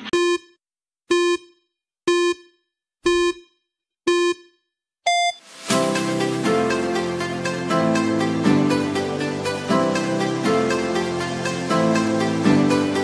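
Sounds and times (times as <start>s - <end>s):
upbeat electronic music: 0.0s - 0.6s, 5.1s - 13.0s
short electronic beeps: 0.0s - 5.5s
higher-pitched beep: 5.1s - 5.5s.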